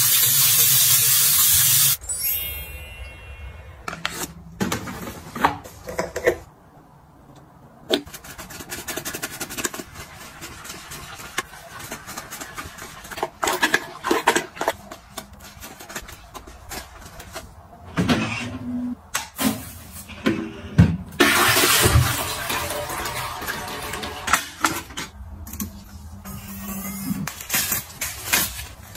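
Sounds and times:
toilet brush scrubbing bowl: 8.1 - 16.9.

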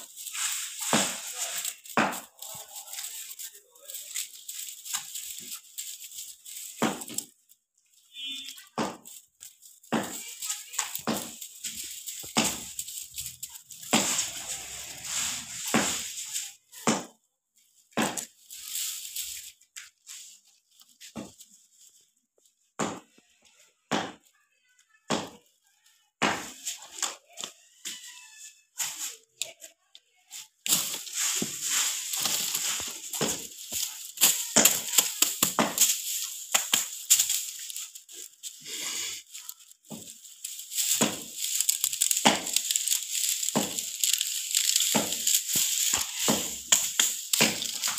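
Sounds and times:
broom sticks clattering and rustling: 0.0 - 47.9.

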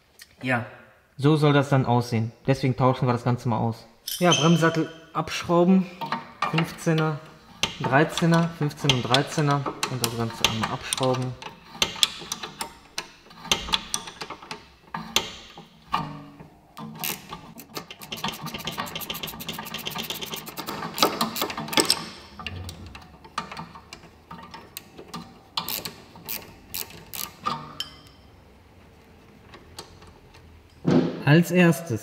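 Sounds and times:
ratchet wrench clicking: 17.0 - 22.0.

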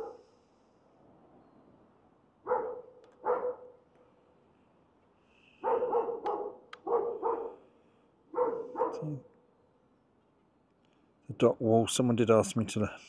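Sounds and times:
dog barking: 0.0 - 0.2, 2.4 - 3.8, 5.6 - 7.7, 8.3 - 9.3.

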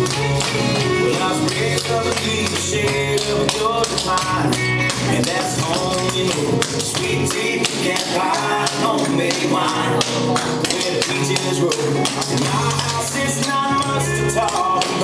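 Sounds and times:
country song over loudspeakers: 0.0 - 15.0.

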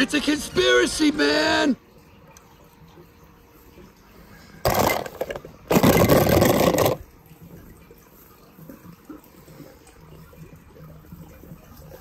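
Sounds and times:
toy cars splashing into water: 4.6 - 7.1.

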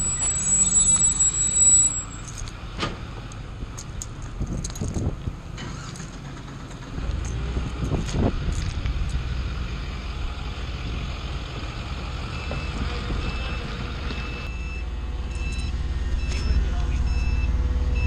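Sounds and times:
reversing alarm beeping: 0.0 - 2.4, 12.2 - 18.0
forklift engine rumble: 0.0 - 18.0.

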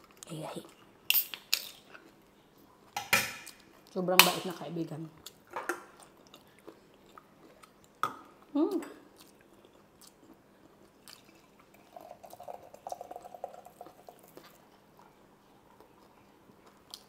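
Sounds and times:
drink pouring into glass: 11.2 - 14.5.

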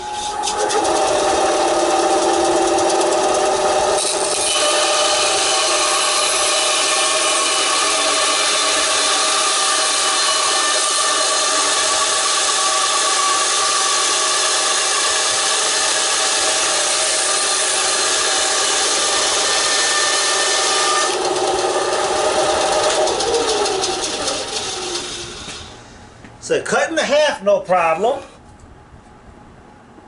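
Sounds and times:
motor hum: 0.0 - 6.8, 18.1 - 26.4
band saw cutting log: 0.0 - 25.9.

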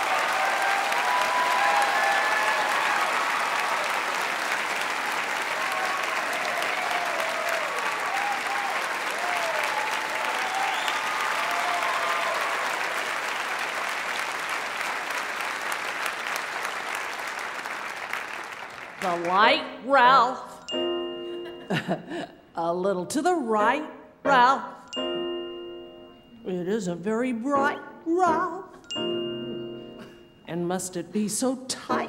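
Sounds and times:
audience applauding: 0.0 - 19.6.

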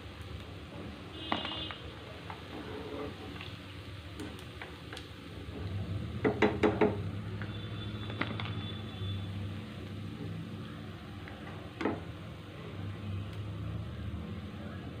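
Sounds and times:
oil sizzling: 0.0 - 15.0.

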